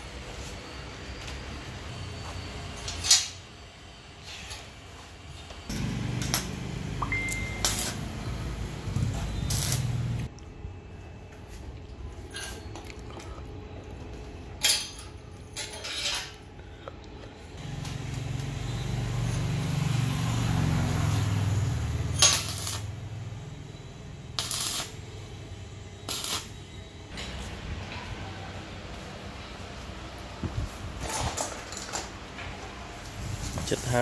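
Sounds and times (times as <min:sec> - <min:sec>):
arc welding crackling: 0:05.7 - 0:10.3, 0:17.6 - 0:26.7.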